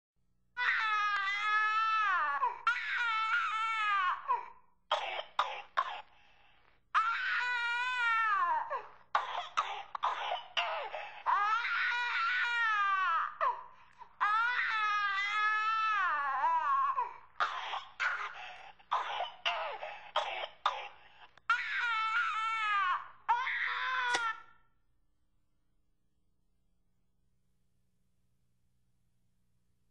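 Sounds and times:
infant crying: 0.6s - 4.6s, 7.0s - 20.2s, 21.5s - 24.6s
infant coughing: 4.9s - 6.2s, 8.7s - 11.4s, 16.9s - 21.7s.

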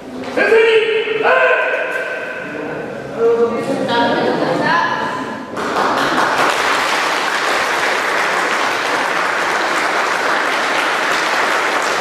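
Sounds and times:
people clapping: 5.5s - 12.0s.

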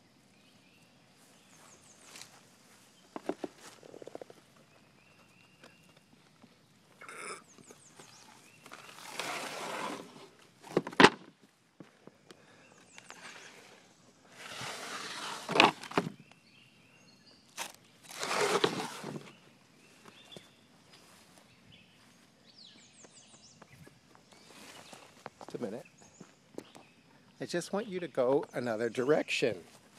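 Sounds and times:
footsteps scuffing over boards: 23.0s - 26.9s.

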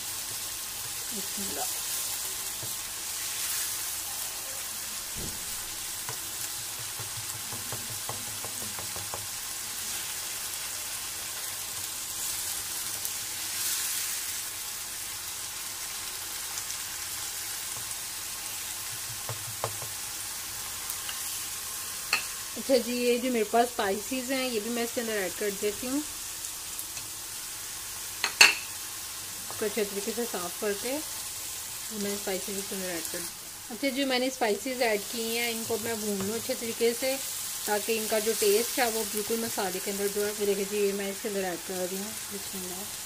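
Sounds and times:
paste sizzling in hot fat: 0.0s - 43.0s
spatula knocking and scraping pan: 5.2s - 9.4s, 18.8s - 20.0s, 35.6s - 36.6s.

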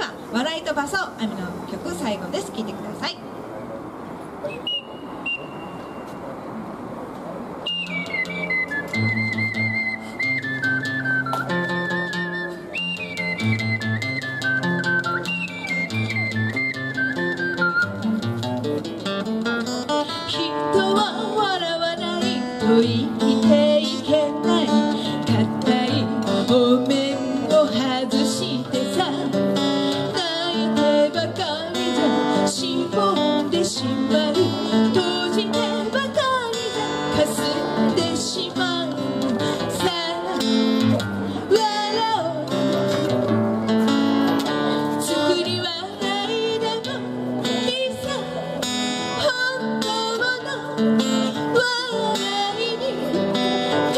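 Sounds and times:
acoustic guitar strummed and picked: 7.7s - 53.9s
woman singing: 20.0s - 40.7s, 41.5s - 42.6s, 45.0s - 48.4s, 49.1s - 53.9s.

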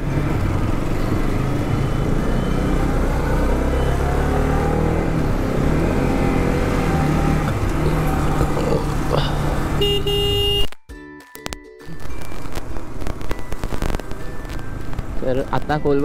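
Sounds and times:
motorcycle engine running: 0.0s - 3.8s
steady road noise: 0.0s - 16.0s.

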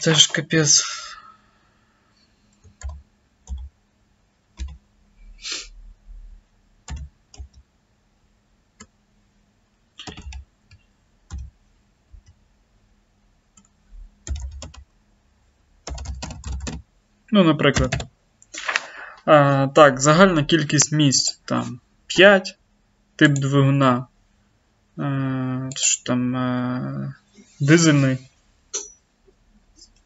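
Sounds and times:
computer keyboard key presses: 4.6s - 4.8s, 6.9s - 7.6s, 10.0s - 10.4s, 14.3s - 14.8s, 15.9s - 16.8s.

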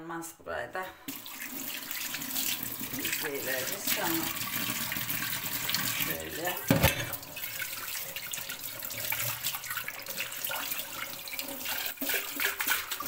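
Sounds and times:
tap water running: 1.0s - 13.0s
pot knocking: 6.6s - 7.2s.

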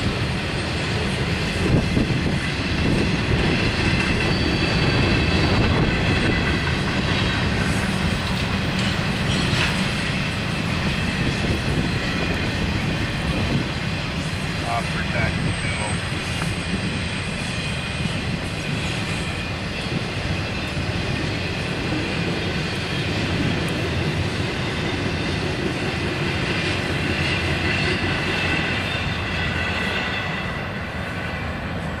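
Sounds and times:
steel wheels rumbling on rails: 0.0s - 32.0s.

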